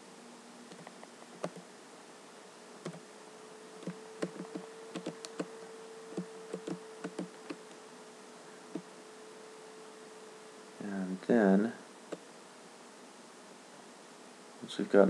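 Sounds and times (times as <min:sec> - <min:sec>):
faint electrical hum: 0:00.0 - 0:15.0
computer keyboard clicking: 0:00.7 - 0:01.6, 0:03.8 - 0:05.5, 0:06.2 - 0:07.6
mouse buttons clicking: 0:00.7 - 0:01.6, 0:03.8 - 0:05.5, 0:06.1 - 0:07.6.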